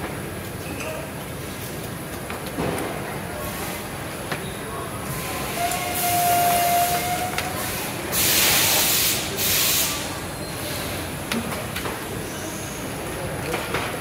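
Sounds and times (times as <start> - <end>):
factory floor noise: 0.0 - 14.0
pressurised air hissing: 7.8 - 10.1.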